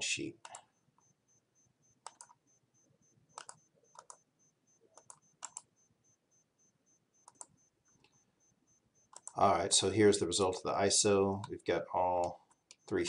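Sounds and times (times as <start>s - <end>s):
computer mouse and key clicks: 0.4s - 0.7s, 2.0s - 2.4s, 3.3s - 4.2s, 4.9s - 5.7s, 7.2s - 8.2s, 9.1s - 9.4s, 12.2s - 13.0s.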